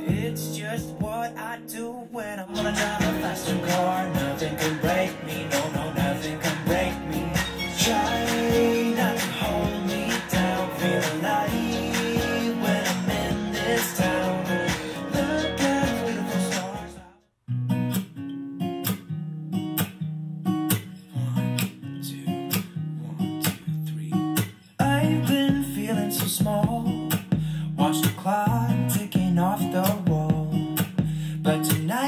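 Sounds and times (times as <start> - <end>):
song with acoustic guitar: 0.0 - 32.0
deep bass: 2.6 - 17.0.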